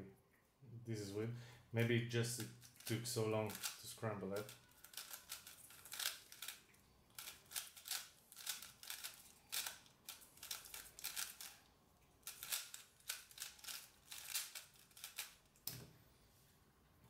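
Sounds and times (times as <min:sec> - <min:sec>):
plastic puzzle cube clacking: 0:02.4 - 0:11.6, 0:12.2 - 0:15.8.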